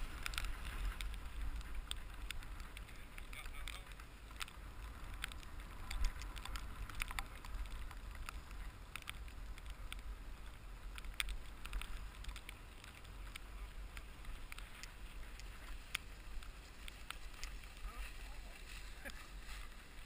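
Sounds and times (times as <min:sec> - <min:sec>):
skis hissing over snow: 0:11.6 - 0:20.0.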